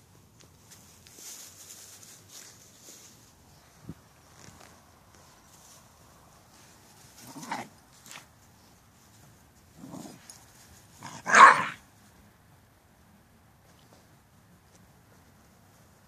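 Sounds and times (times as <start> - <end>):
dogs barking: 11.0 - 11.8.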